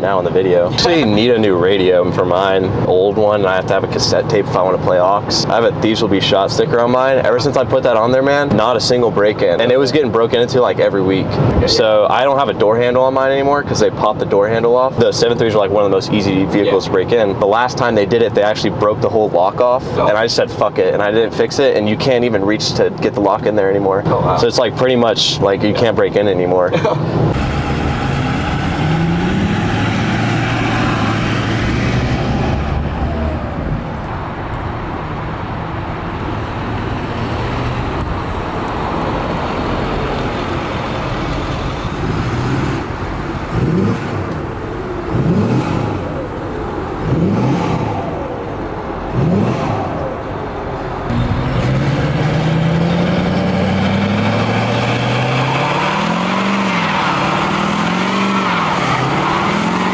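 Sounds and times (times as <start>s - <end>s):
diesel engine revving: 27.2s - 59.9s.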